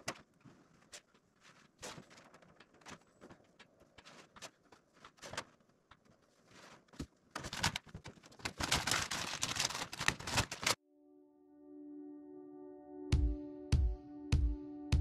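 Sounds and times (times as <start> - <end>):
paper crinkling and sliding: 0.0 - 10.8.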